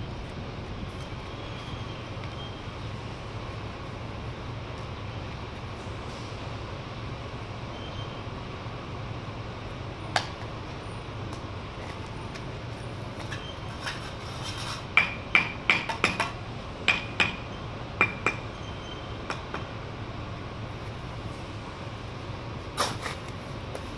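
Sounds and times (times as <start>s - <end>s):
steel trowel tapping bricks: 13.2s - 17.4s.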